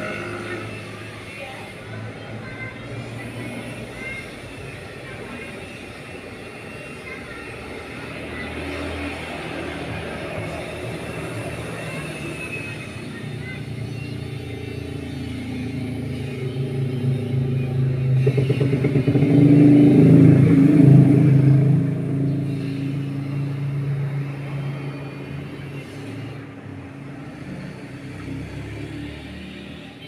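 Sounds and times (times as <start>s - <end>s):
vehicle engine passing by: 14.8s - 29.9s.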